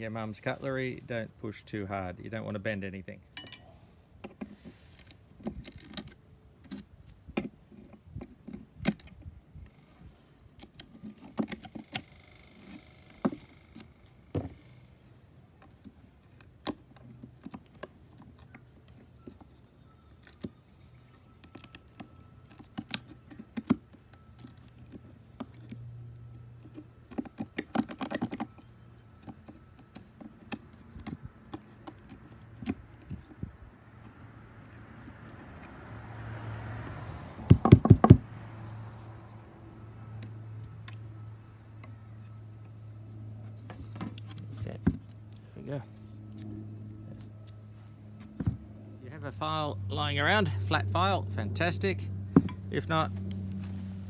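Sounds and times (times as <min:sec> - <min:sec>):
knife chipping and scraping wood: 0:15.7 - 0:35.9.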